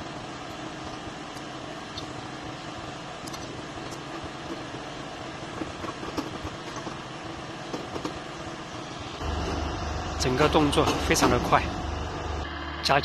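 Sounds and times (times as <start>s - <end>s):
mechanical drone of hydraulic machine: 0.0s - 13.0s.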